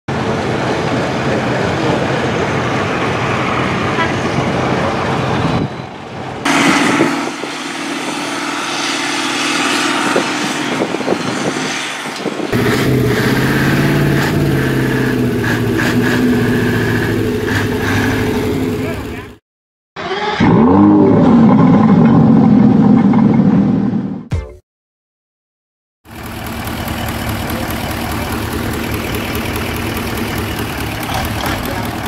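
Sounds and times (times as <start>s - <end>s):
boat engines running at high revs: 6.4s - 19.4s, 26.1s - 32.0s.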